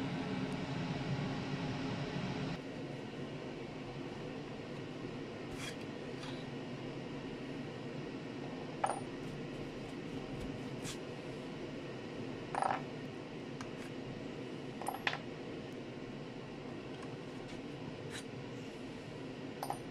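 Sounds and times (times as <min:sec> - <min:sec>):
steady background noise: 0:00.0 - 0:19.9.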